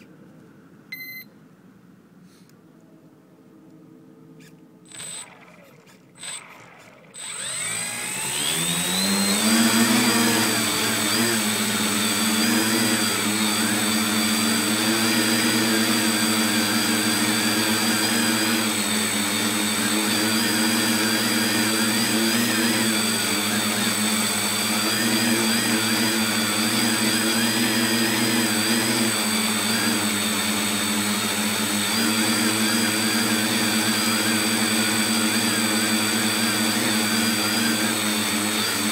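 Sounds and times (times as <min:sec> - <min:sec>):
short beeps: 0:00.9 - 0:01.3
electric motors and propellers whining: 0:04.3 - 0:38.9.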